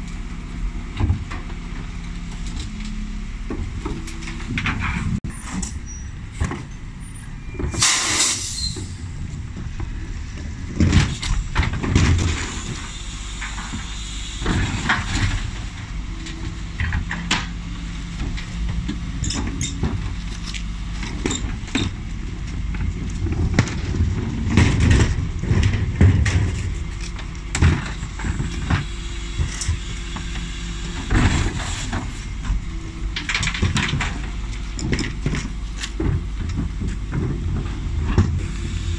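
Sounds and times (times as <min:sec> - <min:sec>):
truck engine drone: 0:00.0 - 0:38.9
air hiss: 0:07.8 - 0:08.8
plastic bins knocking and clattering: 0:10.7 - 0:12.5, 0:22.6 - 0:28.9.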